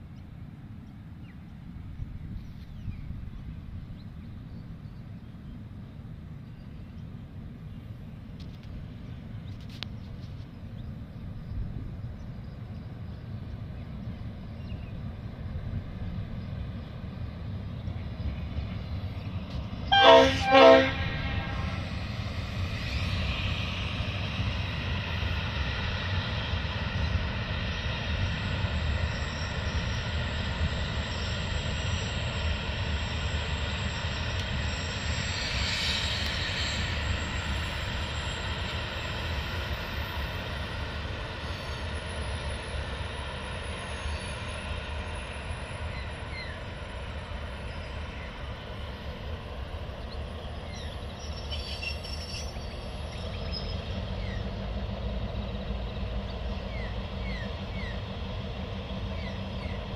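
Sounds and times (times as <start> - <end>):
diesel locomotive drone: 0.0 - 59.9
rumble of passing train: 0.0 - 59.9.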